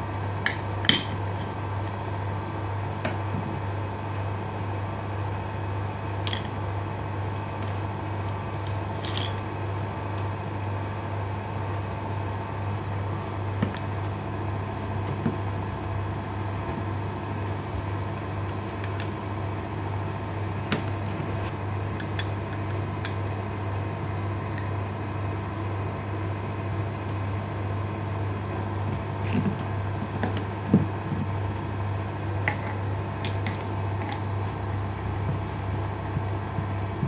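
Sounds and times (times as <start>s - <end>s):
low mechanical hum: 0.0s - 37.0s.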